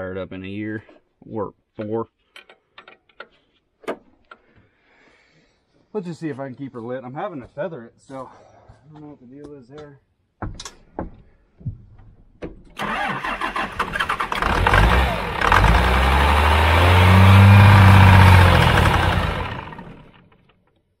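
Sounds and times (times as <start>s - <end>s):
diesel engine starting and revving: 12.8s - 20.4s.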